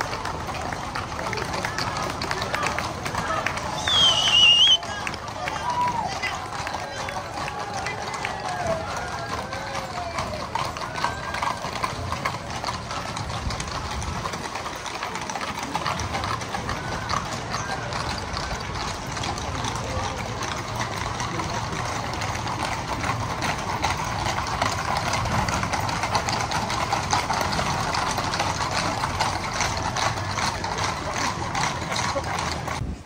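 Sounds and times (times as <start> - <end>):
crowd voices: 0.0 - 33.0
horse hooves clip-clopping on asphalt: 0.0 - 33.0.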